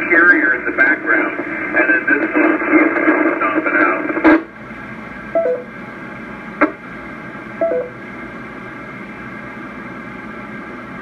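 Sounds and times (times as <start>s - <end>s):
radio carrier hiss and hum: 0.0s - 9.4s
two-note falling beep: 7.6s - 7.9s.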